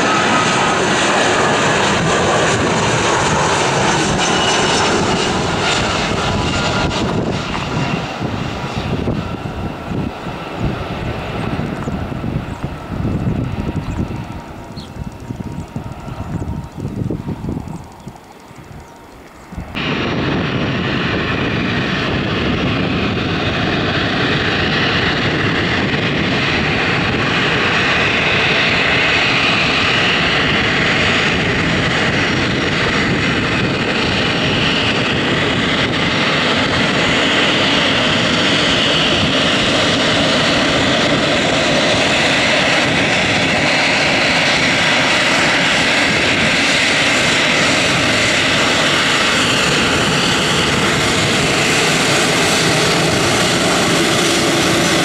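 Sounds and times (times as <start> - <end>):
jet engines whining: 0.0 - 55.0.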